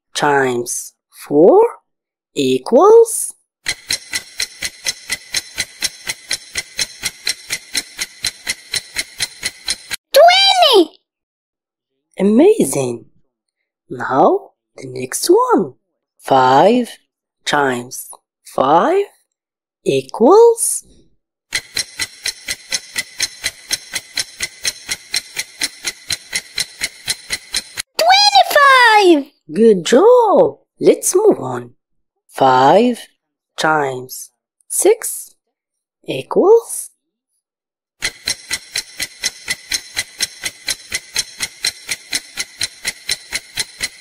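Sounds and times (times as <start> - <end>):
clock ticking: 3.7 - 10.0, 21.5 - 27.9, 38.0 - 44.0.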